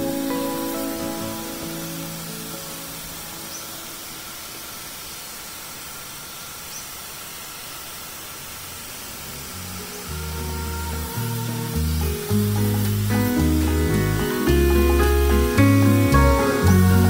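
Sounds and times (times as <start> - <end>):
handheld sprayer hissing: 0.0 - 17.0.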